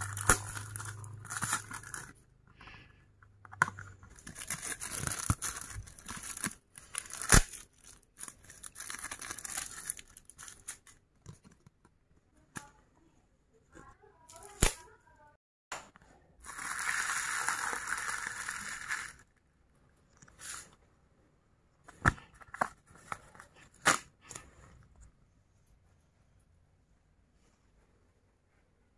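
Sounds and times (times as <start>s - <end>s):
plastic sachets tearing: 0.0s - 2.2s, 3.7s - 10.9s, 16.4s - 19.3s
plastic wrappers crumpling: 0.0s - 2.8s, 3.8s - 10.9s, 16.4s - 19.3s.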